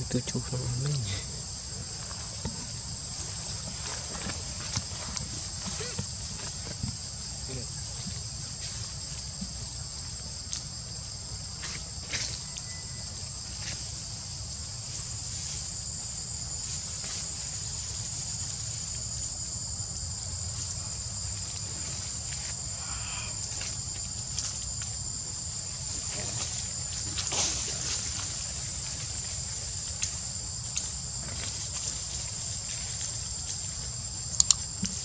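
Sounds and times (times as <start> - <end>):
high-pitched insect chorus: 0.0 - 35.0
faint clicks: 34.3 - 34.6.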